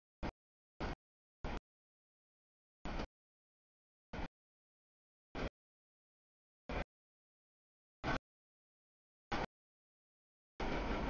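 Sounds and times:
freight train rolling: 10.6s - 11.0s.

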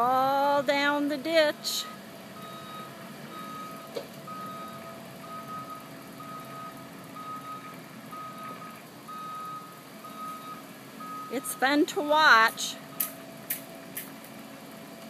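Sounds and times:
diesel engine running: 0.0s - 15.0s
backup alarm beeping: 2.4s - 13.2s.

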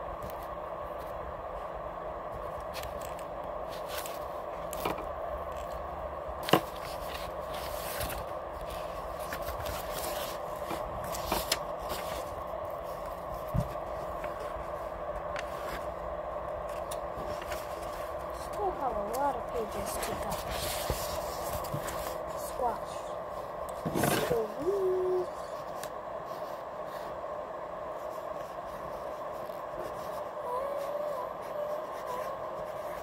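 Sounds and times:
steady background hum: 0.0s - 33.0s
paper and pencil handling: 2.4s - 5.8s, 6.4s - 16.0s, 16.7s - 22.8s, 28.0s - 33.0s
pencil scraping: 28.0s - 33.0s.

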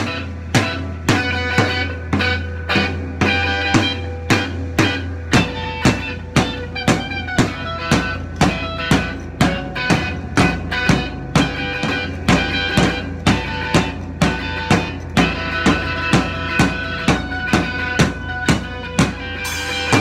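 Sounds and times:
drum kit steady beat: 0.0s - 20.0s
electric guitar: 0.0s - 20.0s.

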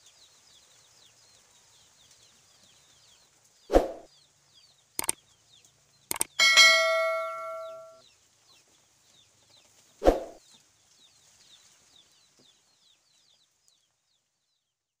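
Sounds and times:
small birds chirping: 0.0s - 15.0s
bell-like chime: 6.4s - 8.0s.

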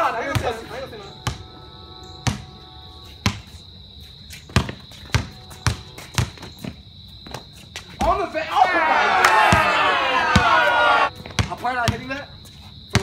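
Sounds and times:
basketball bouncing on concrete: 0.2s - 1.4s, 2.2s - 2.6s, 3.2s - 3.6s, 4.3s - 8.2s, 11.2s - 12.2s.

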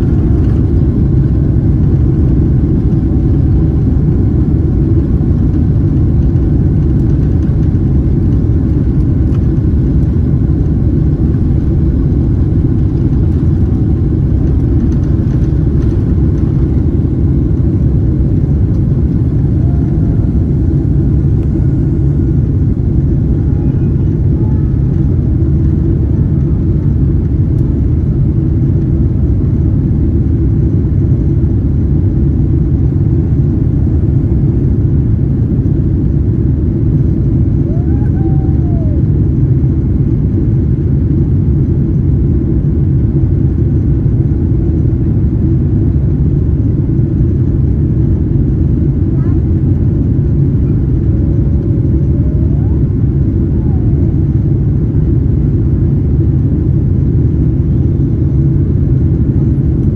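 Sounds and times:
jet engines rumbling in cabin: 0.0s - 59.9s.

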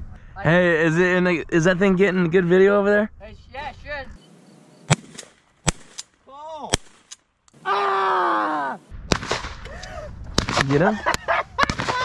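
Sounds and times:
shotgun shots: 4.9s - 6.1s, 6.7s - 7.2s, 9.1s - 9.6s, 10.4s - 11.0s, 11.6s - 12.0s
man crying out: 7.6s - 8.8s.

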